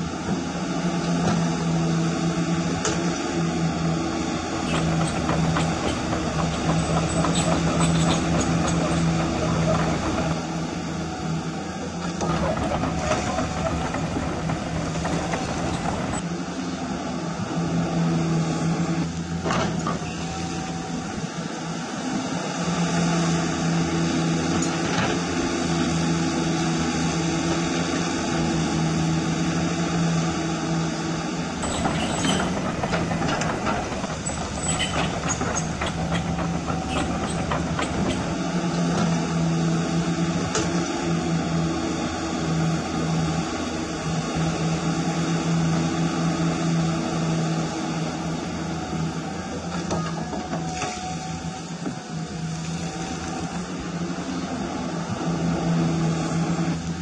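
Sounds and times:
hydraulic hum: 31.6s - 39.2s.

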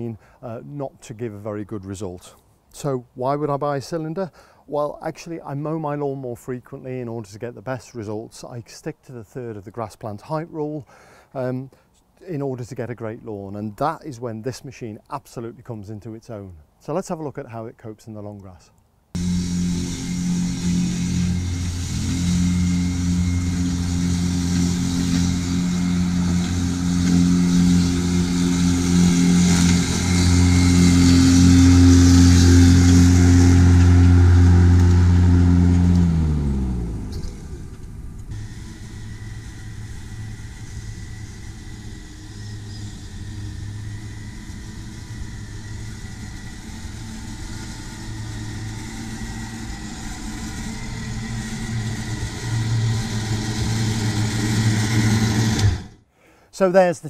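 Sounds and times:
lawnmower engine running: 19.2s - 56.0s
reel mower humming: 19.2s - 56.0s.

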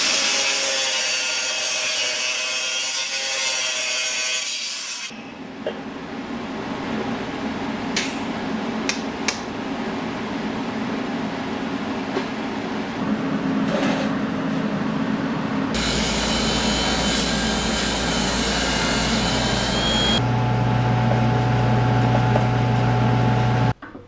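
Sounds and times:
shop machine noise: 4.2s - 24.0s
grinder cutting wire: 15.8s - 20.2s.

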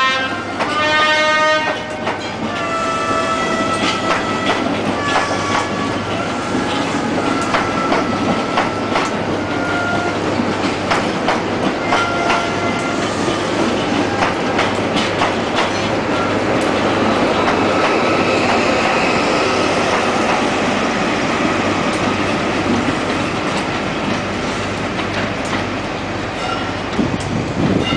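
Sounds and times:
train rolling rumble: 0.0s - 27.9s
train wheel clicks over rail joints: 3.7s - 9.3s, 10.3s - 12.6s, 13.4s - 18.6s.

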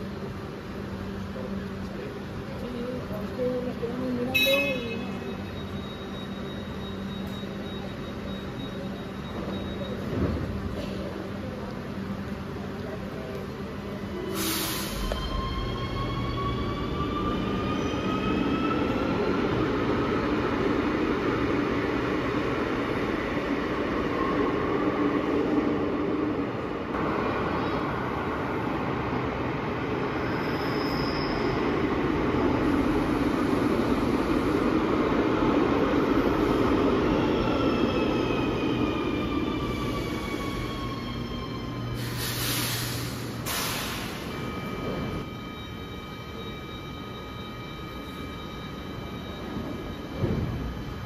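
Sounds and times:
train squealing: 3.4s - 10.7s, 14.0s - 21.0s, 30.0s - 34.8s, 35.8s - 51.0s.

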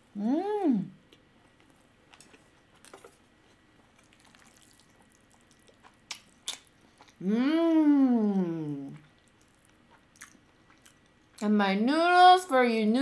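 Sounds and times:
quiet chewing: 1.0s - 7.2s, 8.8s - 11.4s.

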